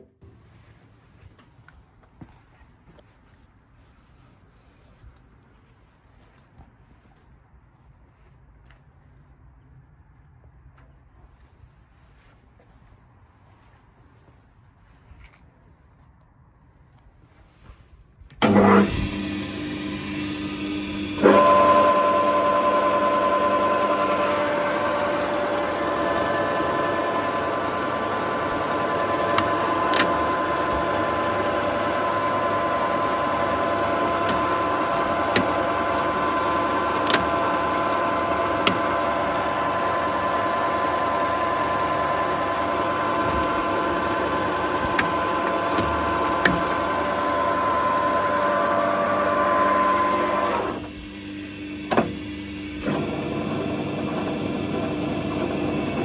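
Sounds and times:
lathe gear whine: 0:18.4 - 0:56.0
motor hum: 0:18.4 - 0:56.0.

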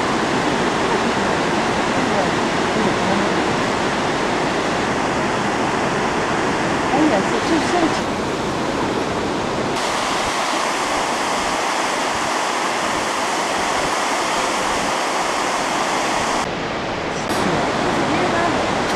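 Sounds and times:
waterfall roaring: 0:00.0 - 0:18.9.

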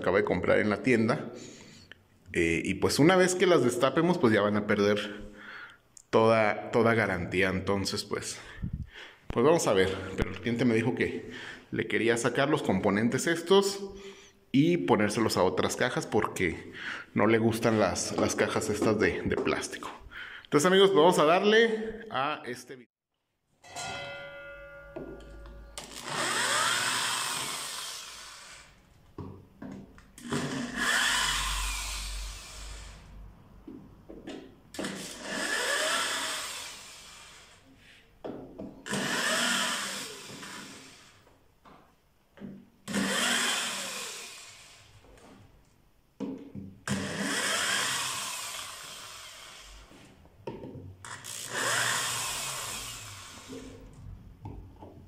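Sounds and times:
electric drill motor whine: 0:25.8 - 0:28.7, 0:30.2 - 0:33.0, 0:38.9 - 0:41.1, 0:42.9 - 0:44.8, 0:51.2 - 0:53.8.

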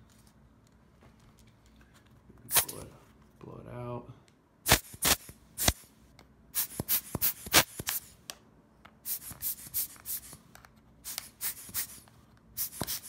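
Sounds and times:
air blower puffs: 0:04.7 - 0:05.9, 0:06.6 - 0:08.2, 0:09.0 - 0:13.0.

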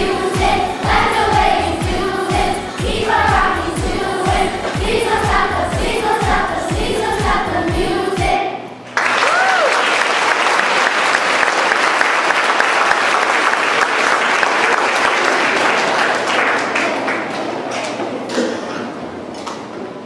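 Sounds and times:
audience applause: 0:08.9 - 0:17.8.

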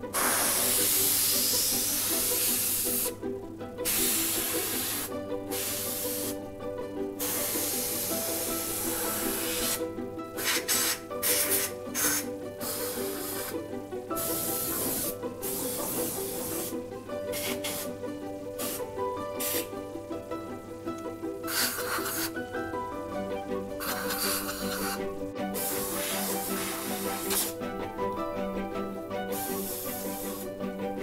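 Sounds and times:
background music: 0:00.0 - 0:31.0
spray gun hissing: 0:00.1 - 0:03.2, 0:03.8 - 0:06.4, 0:07.2 - 0:09.8, 0:10.4 - 0:13.6, 0:14.2 - 0:18.0, 0:18.6 - 0:19.7, 0:21.5 - 0:22.4, 0:23.8 - 0:27.6, 0:29.3 - 0:30.5.

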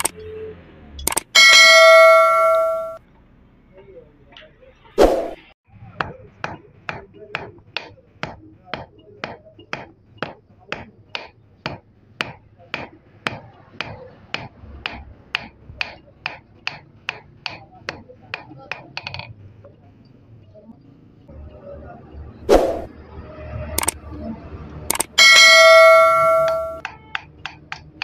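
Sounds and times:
hammer striking hot steel on anvil: 0:01.4 - 0:03.0, 0:06.0 - 0:18.8, 0:25.1 - 0:27.9.

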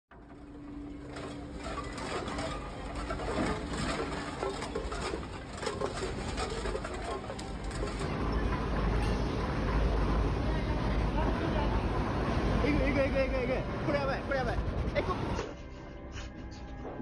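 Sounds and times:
shelving and merchandise rattling: 0:00.1 - 0:15.4.

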